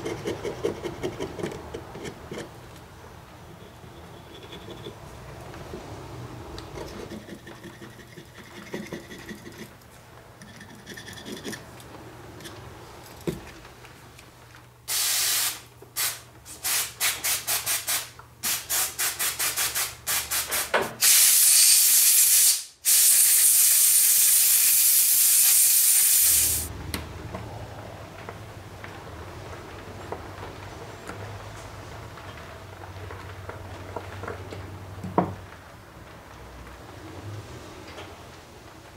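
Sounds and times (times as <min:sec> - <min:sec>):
aerosol spray hissing: 0:14.9 - 0:26.7.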